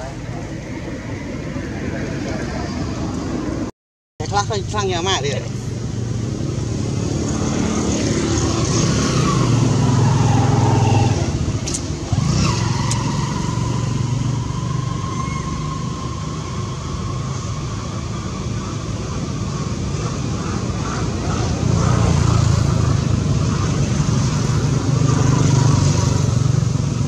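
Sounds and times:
steady engine whine: 0:00.0 - 0:27.0
vehicle engine passing: 0:05.9 - 0:27.0.

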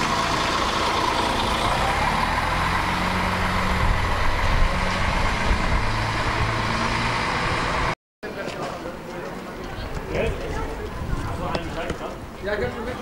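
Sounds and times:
diesel engine idling: 0:00.0 - 0:08.0.

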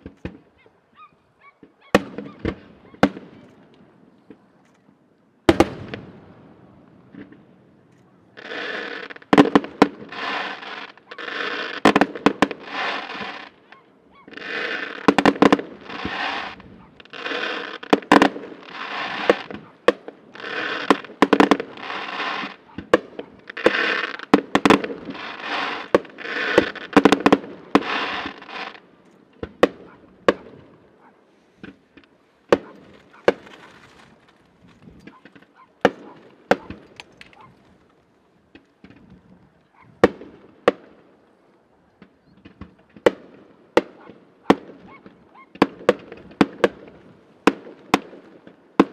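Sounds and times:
fireworks bursting: 0:01.6 - 0:04.5, 0:05.4 - 0:39.2, 0:40.0 - 0:41.1, 0:42.0 - 0:48.9.

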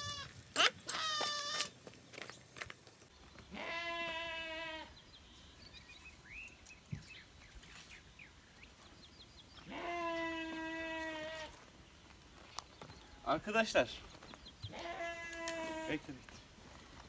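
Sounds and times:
lamb bleating: 0:00.0 - 0:01.7, 0:03.5 - 0:04.9, 0:09.6 - 0:11.5, 0:14.7 - 0:16.0
faint bird chirps: 0:04.9 - 0:09.7.

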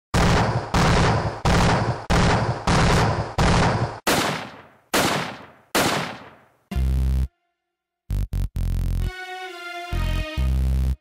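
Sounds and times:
loud gunshot-like blasts: 0:00.2 - 0:06.4.

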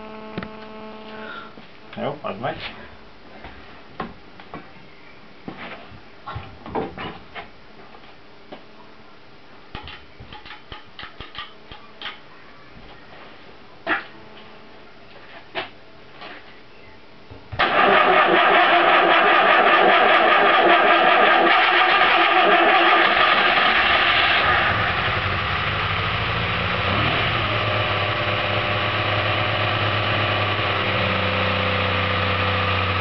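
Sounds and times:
car engine starting and idling: 0:17.6 - 0:33.0.

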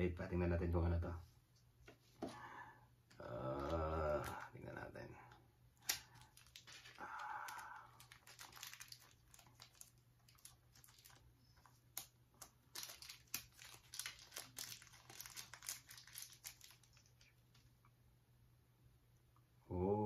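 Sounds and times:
plastic bag crinkling: 0:05.8 - 0:17.7.

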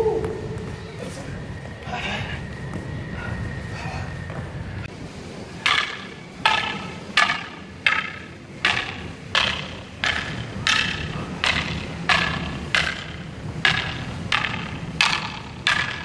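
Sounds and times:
sticks striking each other: 0:05.6 - 0:16.0.

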